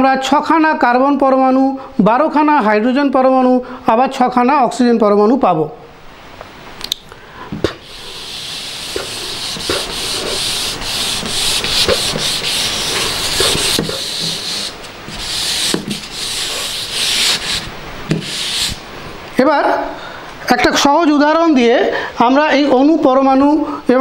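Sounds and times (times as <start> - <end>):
duster scrubbing whiteboard: 7.8 - 18.9.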